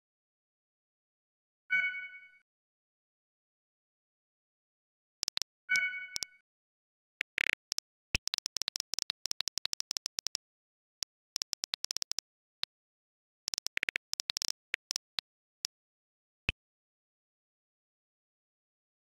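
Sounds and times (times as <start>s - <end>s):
phone keyboard key clicks: 5.2s - 5.4s, 7.2s - 10.4s, 11.0s - 12.2s, 13.5s - 15.2s.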